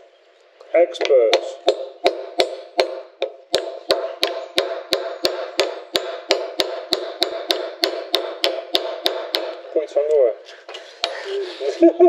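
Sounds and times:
hammer tapping on metal: 0:01.0 - 0:09.6.

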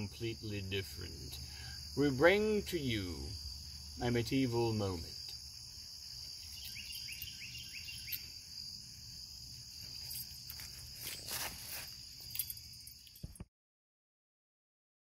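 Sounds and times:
insects trilling: 0:00.0 - 0:13.4
rustling: 0:09.7 - 0:13.4
footsteps: 0:09.8 - 0:12.6.

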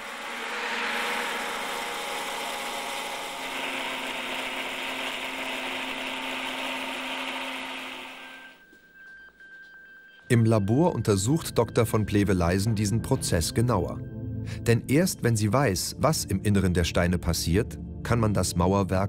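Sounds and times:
drill grinding into stone: 0:00.0 - 0:08.6.

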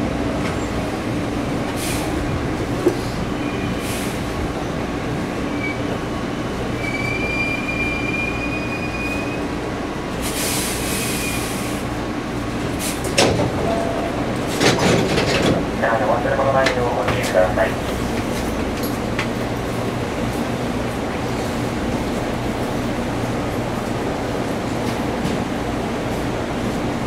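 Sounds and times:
train wheels rumbling on track: 0:00.0 - 0:27.0
high wheel squeal: 0:06.8 - 0:09.4.

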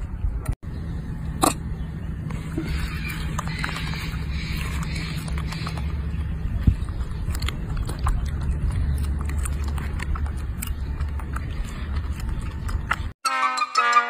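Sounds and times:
steady low rumble: 0:00.0 - 0:13.2
whistle-like music tune: 0:13.2 - 0:14.0.

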